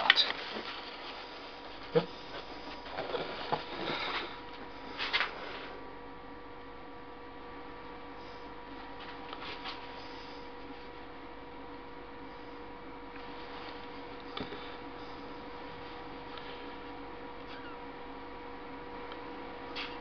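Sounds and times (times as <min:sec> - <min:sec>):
electrical mains hum: 0:00.0 - 0:20.0
rustling rubbing sounds: 0:00.3 - 0:04.3.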